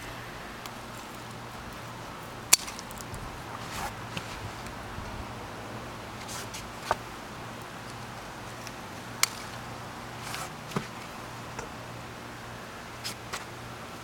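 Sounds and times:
plant leaves rustling: 0:00.0 - 0:05.0
steady low hum: 0:00.0 - 0:14.0.

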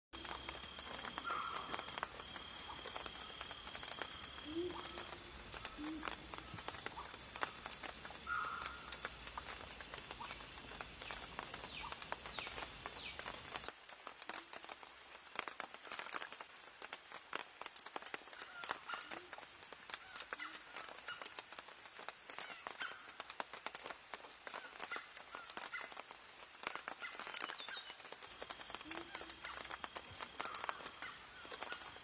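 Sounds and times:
bird chirps: 0:00.2 - 0:13.6
high two-note insect whine: 0:00.2 - 0:13.7, 0:28.2 - 0:32.0.

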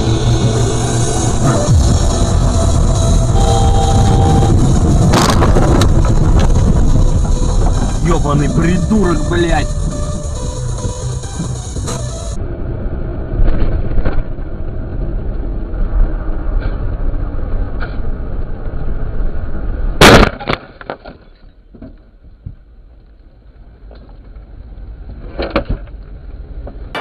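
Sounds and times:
loud collision impact: 0:00.0 - 0:12.3, 0:20.0 - 0:21.0
car engine and road rumble: 0:00.0 - 0:27.0.

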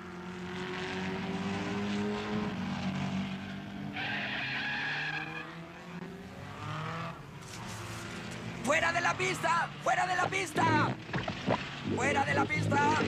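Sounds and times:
race car engines passing fast: 0:00.0 - 0:13.0
tyre squeal: 0:03.9 - 0:05.6.

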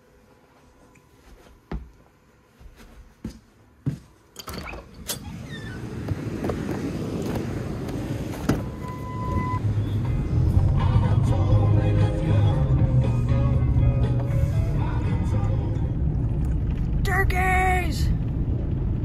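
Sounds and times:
footsteps and handling thuds: 0:00.5 - 0:04.9, 0:05.9 - 0:09.0
outdoor rush of noise: 0:05.3 - 0:19.0
short beep: 0:08.6 - 0:09.6.

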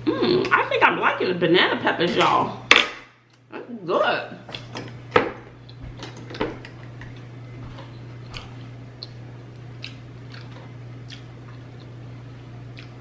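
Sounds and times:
steady low hum: 0:00.0 - 0:13.0
person chewing: 0:05.6 - 0:13.0.

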